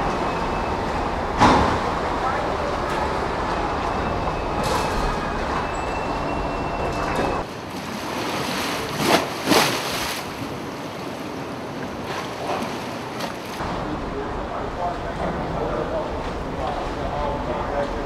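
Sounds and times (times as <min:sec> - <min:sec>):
hurricane wind and rain: 0:00.0 - 0:18.0
faint wind whistle: 0:03.6 - 0:07.5.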